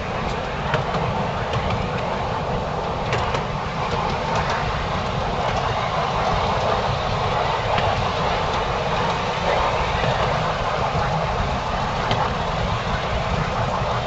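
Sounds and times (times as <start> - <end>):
miniature train running: 0.0 - 14.0
wheels clicking on rails: 0.0 - 14.0.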